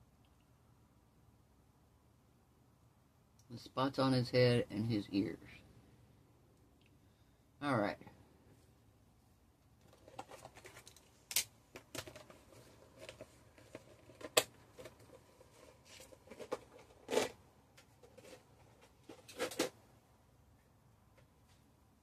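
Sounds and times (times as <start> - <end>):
rustling: 9.8 - 19.8.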